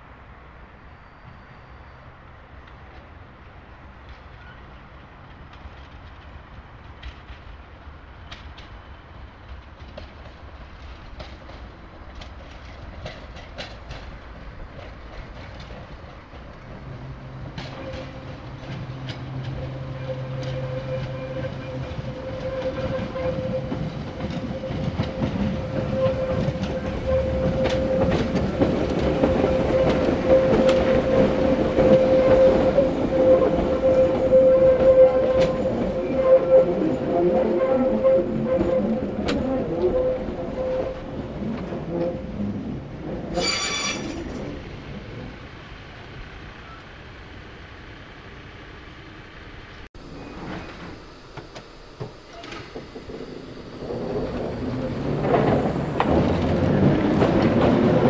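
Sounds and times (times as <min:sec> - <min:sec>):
electric train passing: 0:00.0 - 0:58.0
steady train whine: 0:00.0 - 0:58.0
wheels clicking over rail joints: 0:09.4 - 0:36.0, 0:50.2 - 0:58.0.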